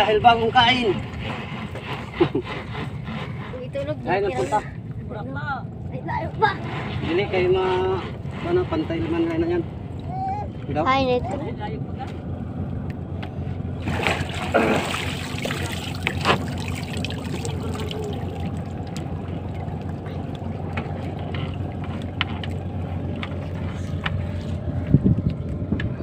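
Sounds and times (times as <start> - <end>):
boat engine idling: 0.0 - 26.0
water splashing against hull: 13.8 - 26.0.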